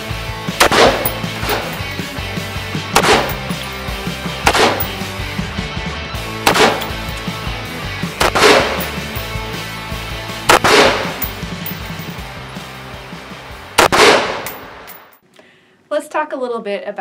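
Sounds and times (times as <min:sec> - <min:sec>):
background music: 0:00.0 - 0:14.9
rifle shots with echo: 0:00.6 - 0:01.8, 0:03.0 - 0:03.5, 0:04.5 - 0:05.0, 0:06.5 - 0:07.0, 0:08.2 - 0:09.1, 0:10.5 - 0:11.4, 0:13.8 - 0:14.8.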